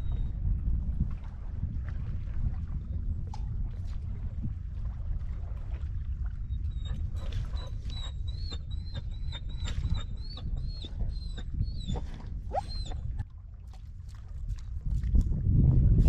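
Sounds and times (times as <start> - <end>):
dog whimpering: 6.7 - 13.0.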